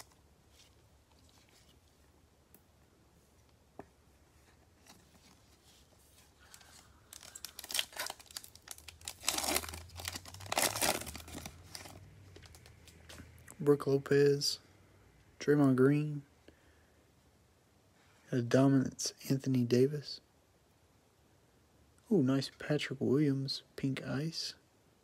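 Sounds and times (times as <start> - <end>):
foil wrapper tearing and crinkling: 6.4 - 12.6.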